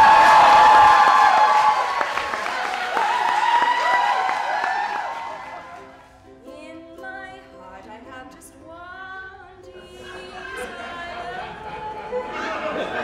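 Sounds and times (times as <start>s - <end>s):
audience cheering and applause: 0.0s - 6.2s.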